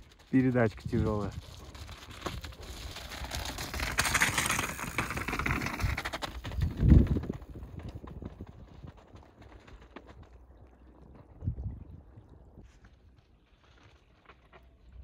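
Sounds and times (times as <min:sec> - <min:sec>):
bike rattling and clicking: 0:00.0 - 0:11.4
bike tyres rolling on rocks: 0:00.0 - 0:15.0.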